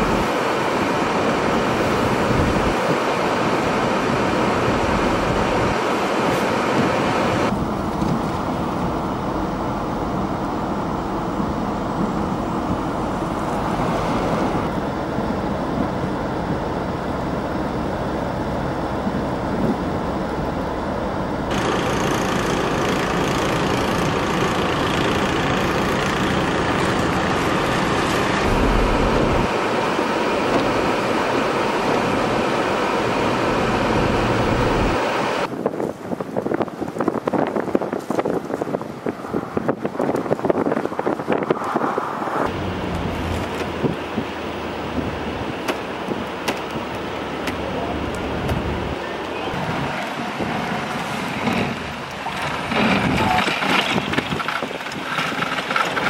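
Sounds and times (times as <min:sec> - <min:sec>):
wind blowing on microphone: 0:00.0 - 0:10.3, 0:26.6 - 0:31.0, 0:34.0 - 0:42.5
vehicles on snowy road: 0:00.0 - 0:56.0.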